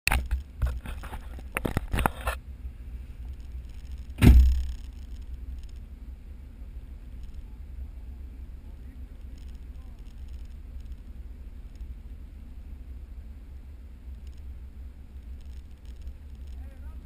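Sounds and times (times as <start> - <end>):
sharp clicks and knocks: 0.1 - 2.4, 3.2 - 5.9, 7.2 - 7.5, 9.2 - 11.1, 14.1 - 14.5, 15.2 - 17.0
car engine idling: 2.4 - 17.0
loud thump: 4.1 - 4.9.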